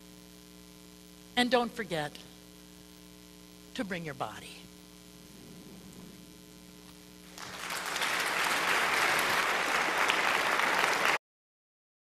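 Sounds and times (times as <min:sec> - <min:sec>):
low electrical hum: 0:00.0 - 0:11.2
congregation applauding: 0:07.2 - 0:11.2.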